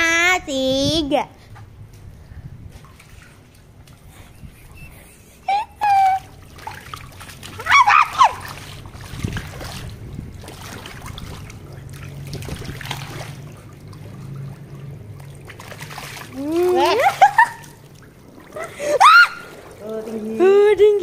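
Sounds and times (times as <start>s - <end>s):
water spraying and splashing: 5.4s - 21.0s.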